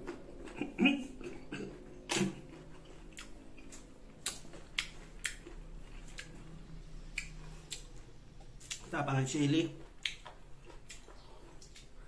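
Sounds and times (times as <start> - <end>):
chewing crisp mango: 0.0 - 12.0
wet mouth clicks: 7.1 - 8.0.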